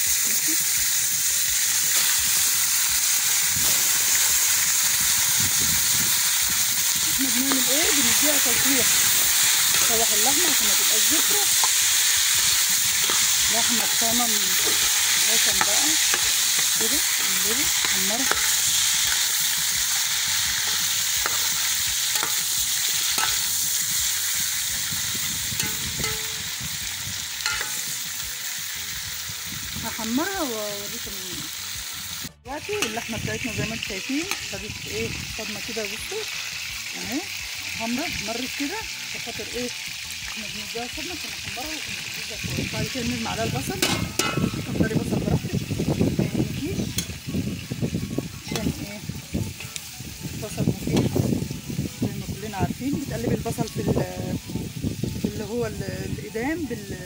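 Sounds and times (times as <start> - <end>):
meat sizzling in hot oil: 0.0 - 57.0
metal ladle scraping pot: 7.6 - 23.7, 25.5 - 26.6, 27.4 - 27.9, 43.8 - 44.7.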